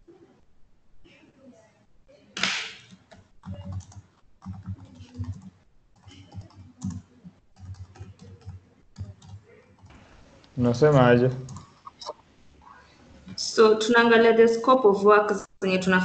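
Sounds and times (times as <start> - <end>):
keyboard typing: 2.4 - 12.2.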